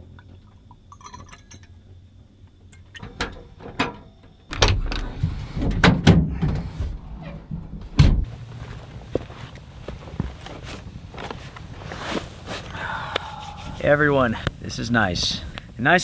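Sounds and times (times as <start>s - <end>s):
faint metallic jingle: 0.9s - 1.8s.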